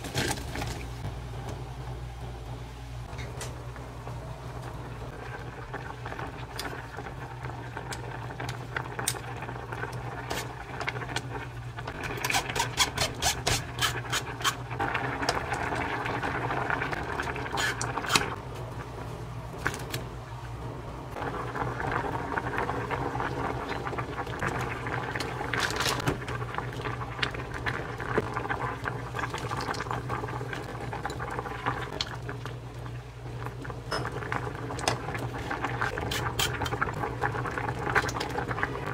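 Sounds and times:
steady low hum: 0.0s - 12.1s
stew bubbling in a saucepan: 0.0s - 38.9s.

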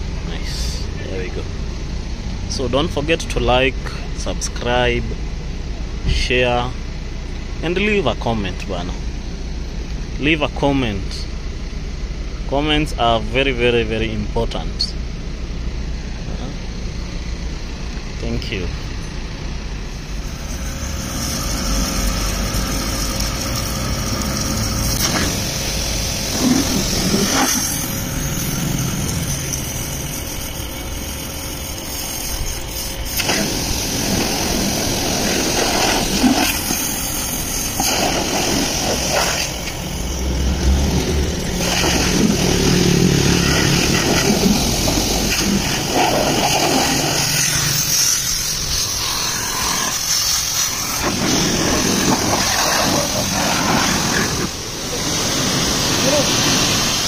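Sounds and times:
pressure washer spraying: 19.9s - 57.0s.

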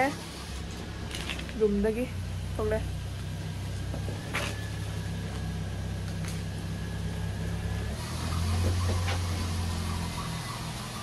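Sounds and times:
vehicle engine droning: 0.0s - 11.0s.

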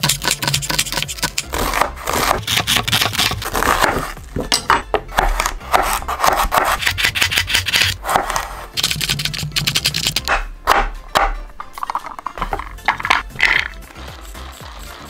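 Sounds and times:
knife cutting vegetables: 0.0s - 4.5s, 5.1s - 15.0s.

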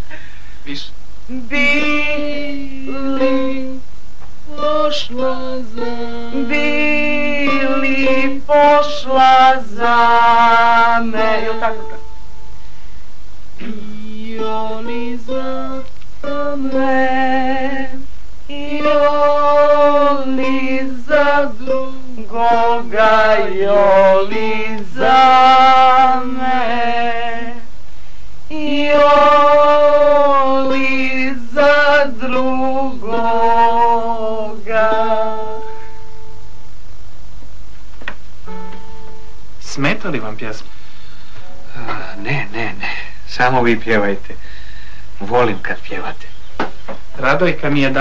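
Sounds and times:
guitar: 0.0s - 48.0s
woman singing slow song: 1.2s - 12.3s, 13.6s - 36.5s.

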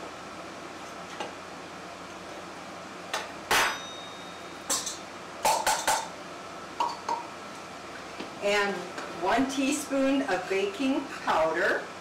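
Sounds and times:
kitchen utensils knocking and clinking: 4.7s - 6.1s.

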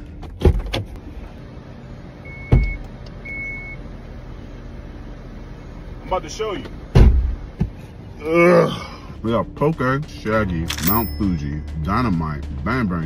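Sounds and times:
low hum in car cabin: 0.0s - 13.0s
car warning chime beeps: 2.2s - 3.8s
car door shutting: 2.4s - 2.8s, 6.9s - 7.8s
car door knocks: 6.9s - 7.8s.

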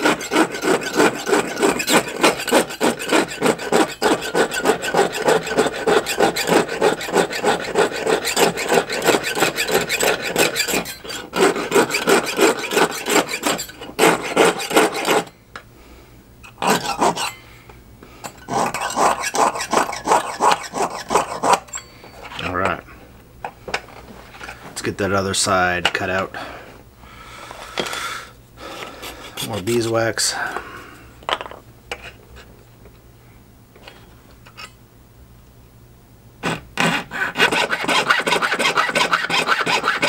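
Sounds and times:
saw blade rasping on metal: 0.0s - 15.4s, 16.5s - 17.4s, 18.3s - 22.4s, 28.9s - 29.9s, 36.4s - 40.0s.

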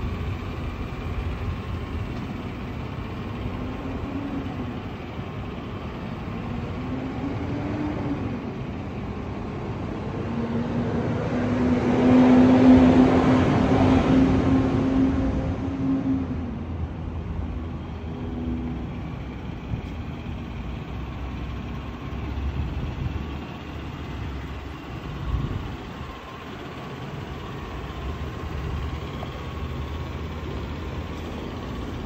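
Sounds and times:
truck engine idling: 0.0s - 32.0s.

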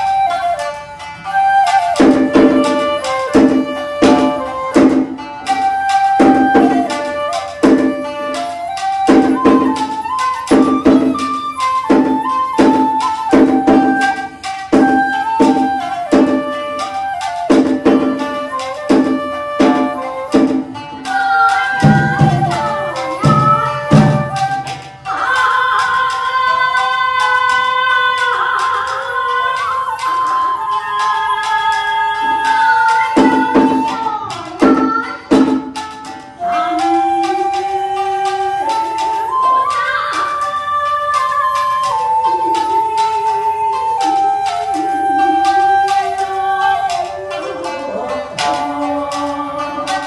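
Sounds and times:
drum strokes: 0.0s - 27.3s, 32.2s - 40.0s
folk song accompaniment: 0.0s - 50.0s
shakuhachi flute melody: 0.0s - 50.0s
karaoke backing track: 30.5s - 40.6s.

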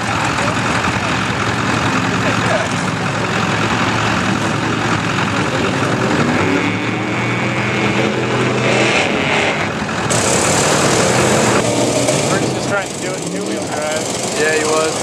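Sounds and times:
truck engine revving: 0.0s - 15.0s.

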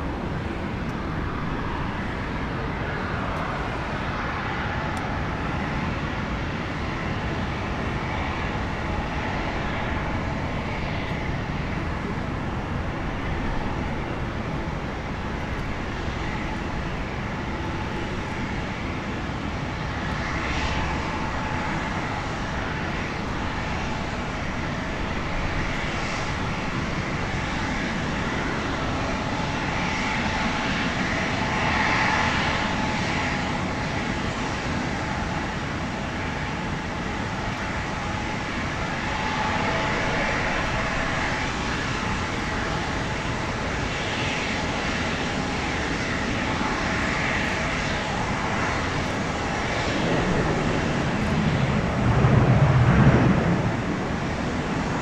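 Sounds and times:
jet engines running: 0.0s - 55.0s
deep rumble: 49.3s - 55.0s.

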